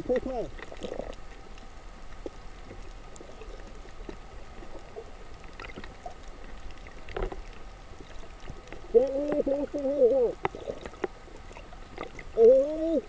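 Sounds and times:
faint clicks and crackles: 0.0s - 13.0s
low underwater rumble: 0.0s - 13.0s.

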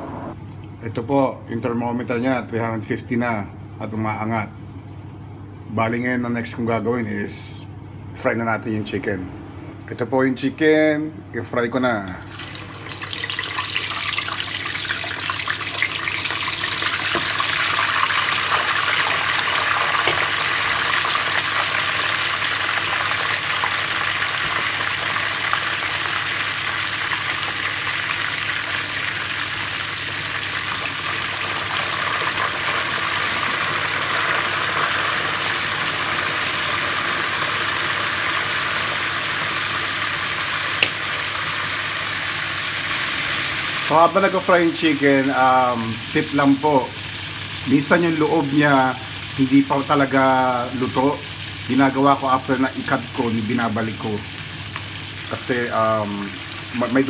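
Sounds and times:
chicken sizzling in oil: 12.3s - 57.0s.

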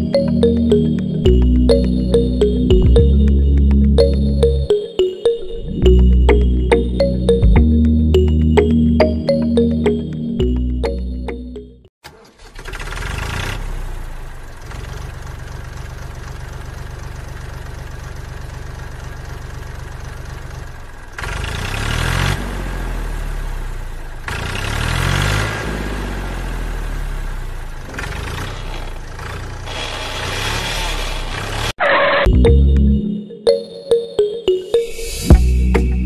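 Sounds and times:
diesel tractor engine: 10.4s - 22.2s, 26.9s - 32.3s.

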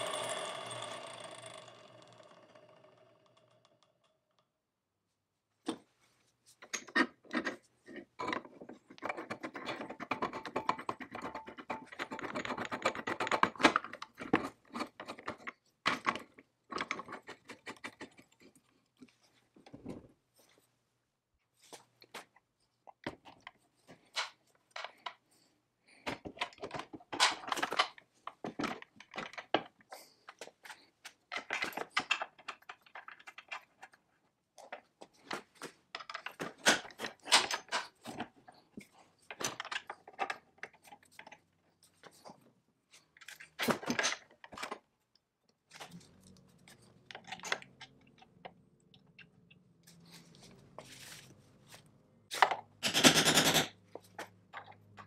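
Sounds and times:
metal parts clicking and clinking: 52.3s - 55.0s.

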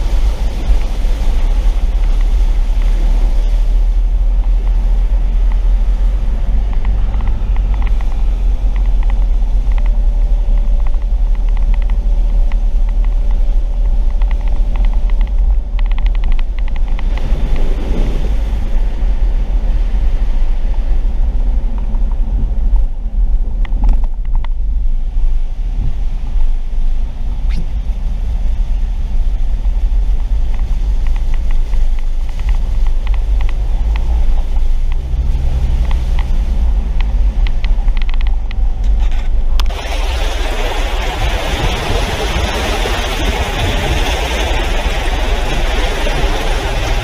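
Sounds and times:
car interior rumble: 0.0s - 47.0s
light ticks: 6.6s - 17.3s, 29.6s - 39.7s
tyre spraying water: 39.7s - 47.0s.

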